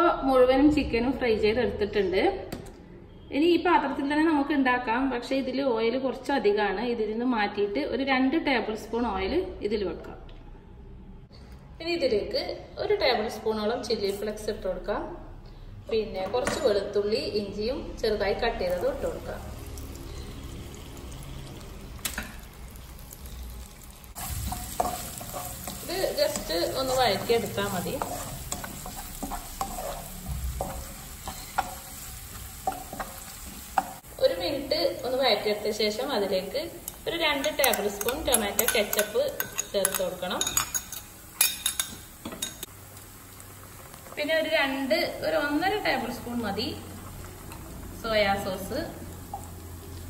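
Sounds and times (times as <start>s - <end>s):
garlic sizzling in oil: 17.8s - 50.0s
spatula stirring in wok: 24.2s - 34.2s
metal spoon scraping ceramic bowl: 28.0s - 31.8s.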